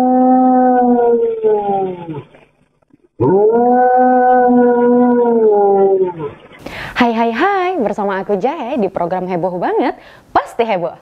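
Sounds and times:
dog howling: 0.0 - 2.4, 3.2 - 6.5.

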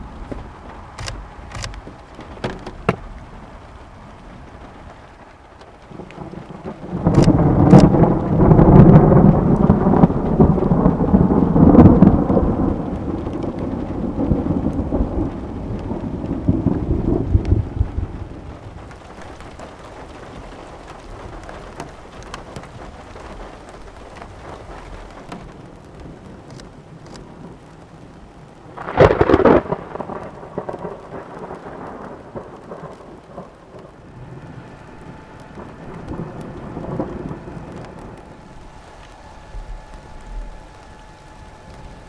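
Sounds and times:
steady rain: 0.0 - 42.0
thunder rumble: 0.0 - 42.0
thunderclap: 0.0 - 42.0.

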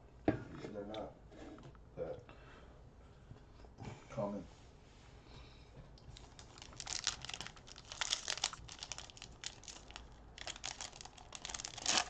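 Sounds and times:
plastic wrapper crinkling: 6.1 - 12.0.

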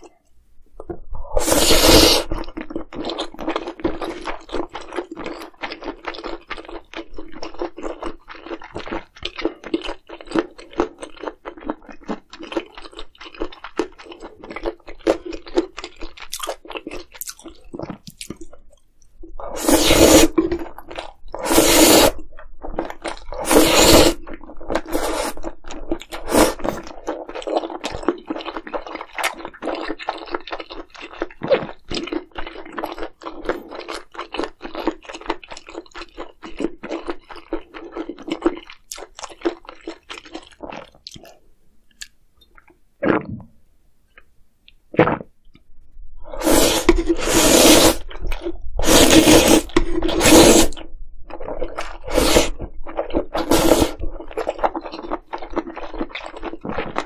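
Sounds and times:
loud eating bursts: 1.4 - 2.4, 19.6 - 20.3, 21.4 - 22.2, 46.4 - 48.0, 48.8 - 50.8, 53.4 - 54.0
crackly chewing: 24.1 - 42.8, 48.0 - 57.0.

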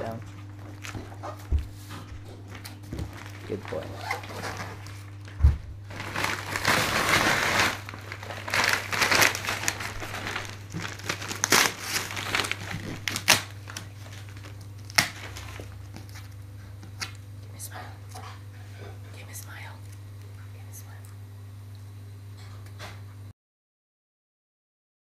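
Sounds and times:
wrapping paper crinkling: 2.5 - 17.4
sharp crackles: 5.9 - 16.2.

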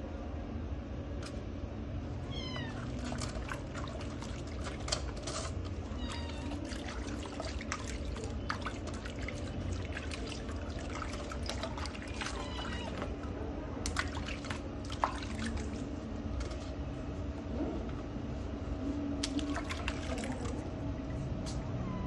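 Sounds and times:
kitten mewing: 2.2 - 3.2, 12.0 - 13.2
water splashing: 2.6 - 16.0, 19.2 - 21.2.

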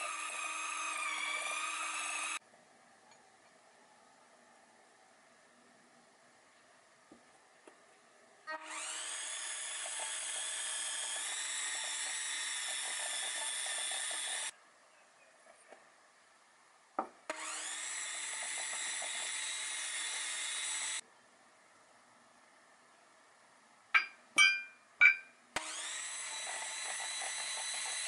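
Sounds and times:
electric hand mixer running: 0.0 - 2.4, 8.5 - 14.5, 17.3 - 21.0, 25.6 - 28.0.

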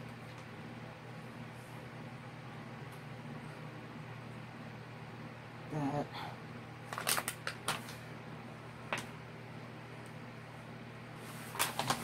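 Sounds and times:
faint steady hum: 0.0 - 12.0
plastic film crinkling: 6.8 - 8.0, 11.4 - 12.0.

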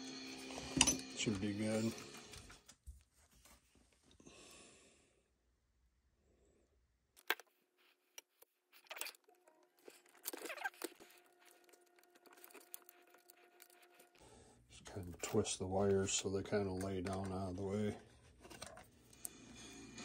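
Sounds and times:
hands peeling and pressing tape: 7.2 - 14.2.

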